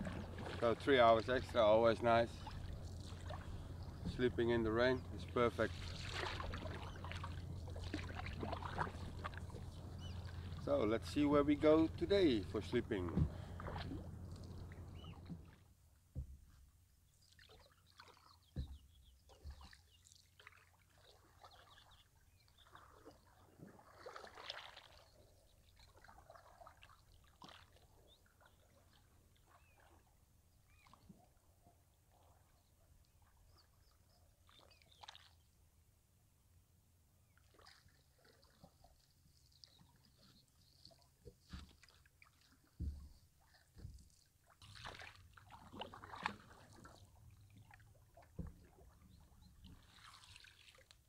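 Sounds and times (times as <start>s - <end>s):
water dripping off paddle: 0.0s - 1.6s, 5.0s - 10.8s, 12.8s - 15.5s
paddle splashes: 0.0s - 35.6s, 37.3s - 51.0s.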